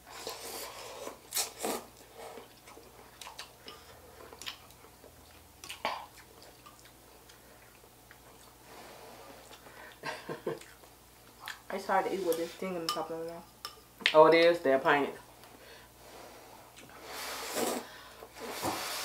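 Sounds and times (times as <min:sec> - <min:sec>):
people slurping noodles: 0:17.0 - 0:19.0.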